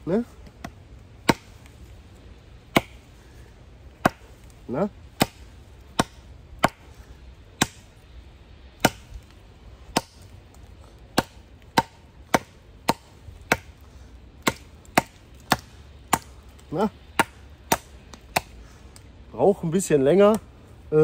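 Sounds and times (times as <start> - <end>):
knife chopping wood: 0.4 - 1.8, 2.7 - 3.0, 4.0 - 4.5, 5.1 - 6.9, 7.6 - 7.9, 8.8 - 9.2, 9.9 - 10.3, 11.1 - 13.8, 14.4 - 18.5.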